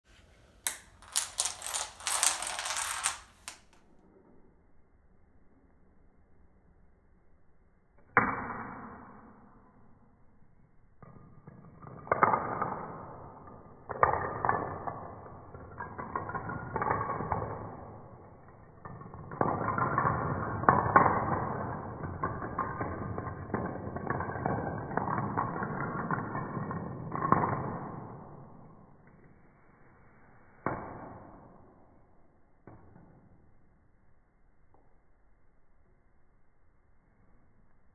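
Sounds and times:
toy dominoes toppling clicks: 0.6s - 3.8s.

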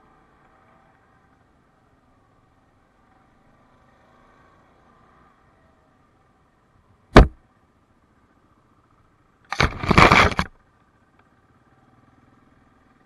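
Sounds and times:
sharp knock on camera: 7.2s - 7.4s
branches scraping camera housing: 9.5s - 10.5s.

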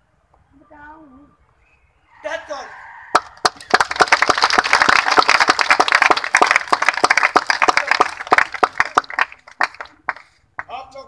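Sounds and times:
audience applause: 3.2s - 10.3s.

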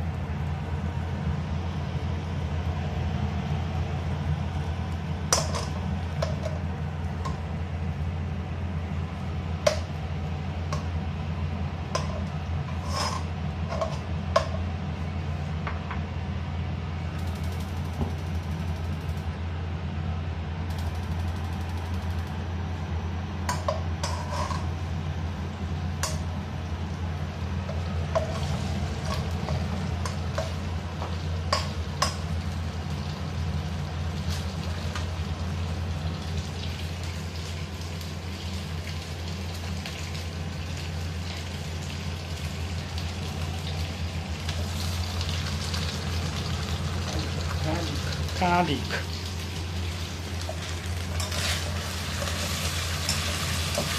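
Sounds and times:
steady low hum: 0.0s - 53.9s
food stirred in oil: 11.8s - 14.7s, 23.5s - 25.0s, 25.9s - 35.5s, 44.5s - 53.9s.

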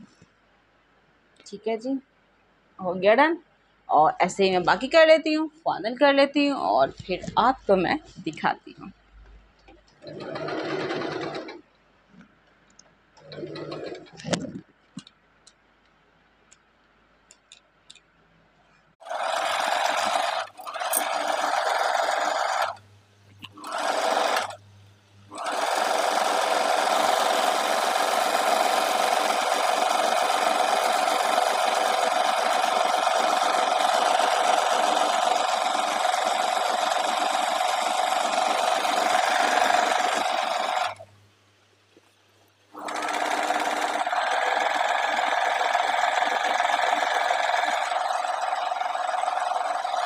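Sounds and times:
sewing machine stitching: 9.7s - 11.7s, 13.2s - 14.6s, 19.0s - 22.8s, 23.4s - 24.6s, 25.3s - 41.0s, 42.8s - 50.0s.

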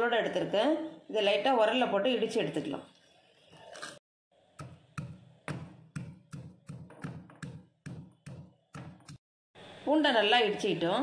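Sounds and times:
pestle pounding in stone mortar: 4.6s - 9.2s.

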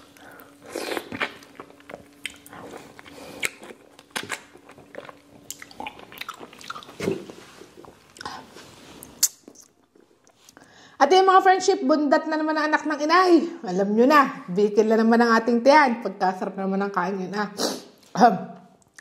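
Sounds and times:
person biting and chewing fruit: 0.1s - 10.5s.

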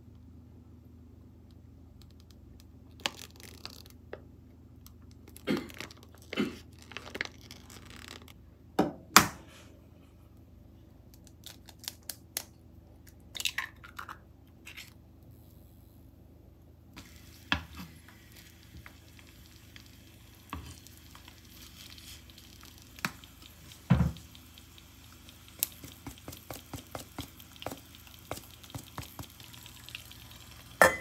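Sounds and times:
faint steady hum: 0.0s - 31.0s
plastic pouch crinkling: 2.9s - 4.0s
egg cracking: 17.0s - 30.8s.

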